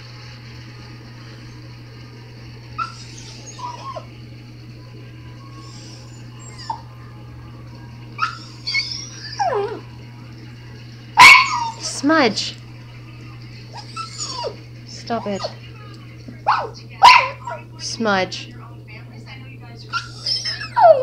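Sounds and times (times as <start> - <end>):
small dog whining: 2.8 - 4.1, 5.4 - 7.0, 8.2 - 9.9, 11.2 - 11.9, 13.7 - 14.6, 19.9 - 21.0.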